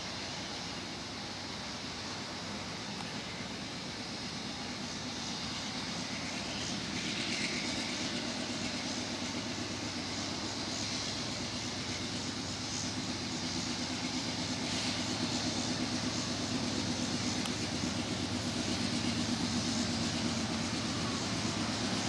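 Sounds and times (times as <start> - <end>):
diesel locomotive engines rumbling: 0.0 - 22.0.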